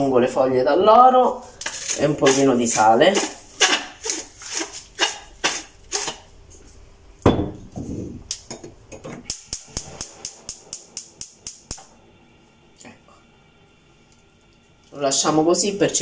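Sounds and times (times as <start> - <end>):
gas hob igniter clicking: 9.2 - 11.9.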